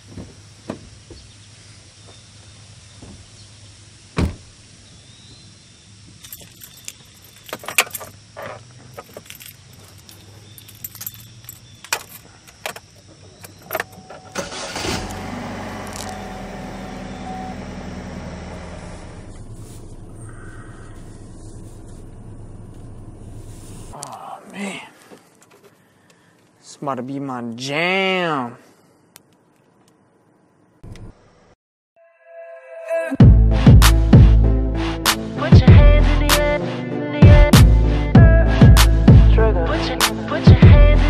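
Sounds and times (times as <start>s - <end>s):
car door shutting: 4.2s - 4.5s, 13.5s - 20.6s
keys jangling: 6.2s - 14.0s
car engine starting and idling: 12.0s - 24.0s.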